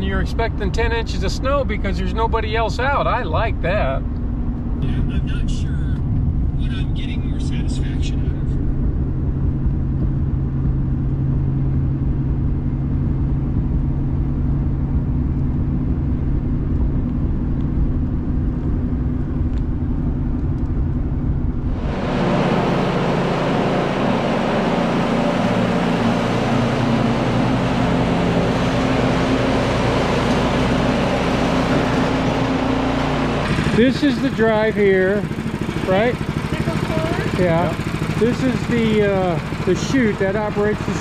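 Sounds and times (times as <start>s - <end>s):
truck engine and road rumble: 0.0s - 41.0s
hissy noise with hum: 4.8s - 9.0s.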